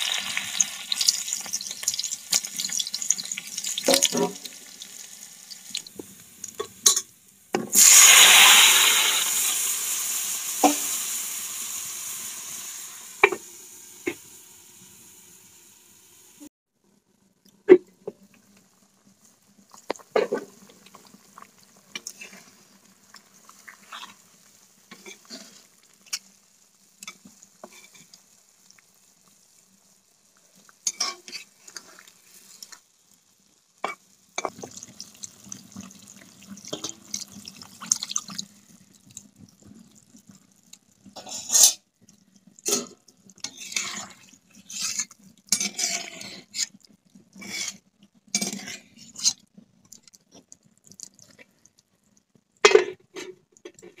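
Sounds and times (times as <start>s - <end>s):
curry sizzling: 0.0s - 16.5s, 17.4s - 54.0s
spatula scraping iron pan: 43.4s - 46.7s.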